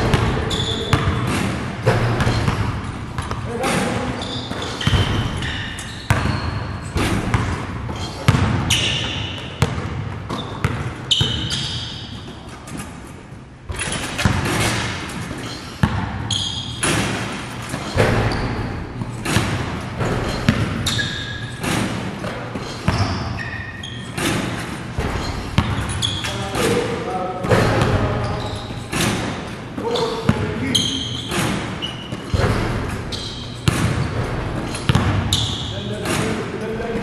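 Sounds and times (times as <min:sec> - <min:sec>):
basketballs bouncing on gym floor: 0:00.0 - 0:37.0
short high squeaks: 0:00.5 - 0:00.9, 0:04.0 - 0:07.0, 0:08.0 - 0:09.5, 0:10.3 - 0:12.8, 0:15.4 - 0:17.0, 0:20.2 - 0:21.7, 0:22.6 - 0:24.4, 0:25.2 - 0:26.5, 0:28.2 - 0:29.0, 0:29.9 - 0:35.9.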